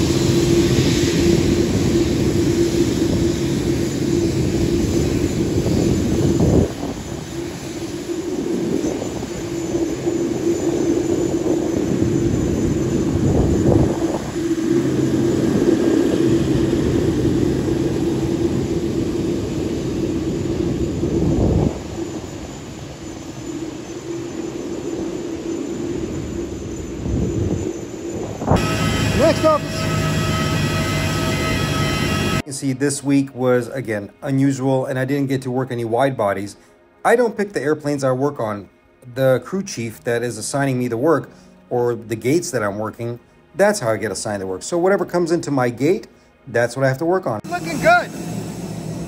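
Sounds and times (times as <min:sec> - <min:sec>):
jet engine drone: 0:00.0 - 0:49.0
rushing roar: 0:28.4 - 0:32.4.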